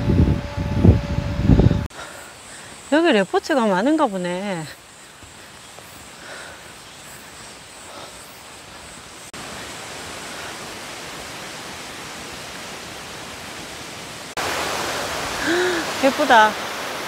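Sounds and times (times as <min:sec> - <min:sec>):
waterfall rushing: 0:08.5 - 0:17.0.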